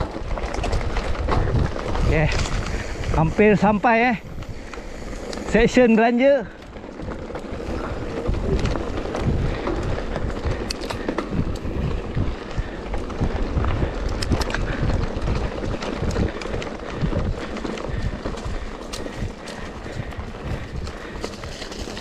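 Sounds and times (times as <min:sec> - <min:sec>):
bike clicks and rattles: 0:00.0 - 0:22.0
bike tyres crunching on gravel: 0:00.0 - 0:22.0
low microphone rumble: 0:07.0 - 0:22.0.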